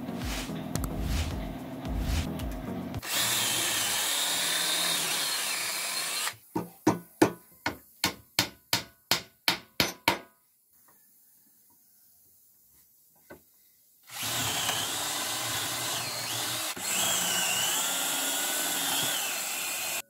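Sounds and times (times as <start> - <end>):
power drill boring into wood: 3.0 - 6.4, 14.1 - 20.0.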